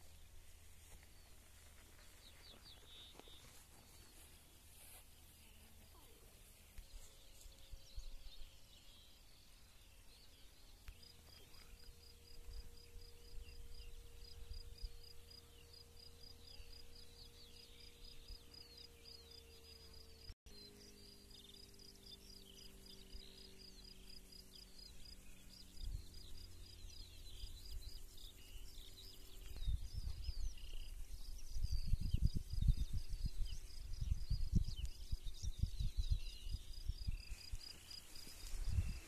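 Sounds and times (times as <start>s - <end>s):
small birds chirping: 0.0s - 39.0s
low wind rumble: 29.5s - 39.0s.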